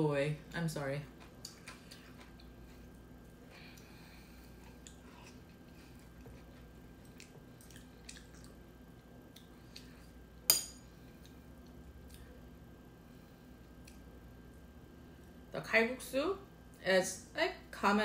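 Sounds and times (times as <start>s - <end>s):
soft chewing: 0.5s - 15.5s.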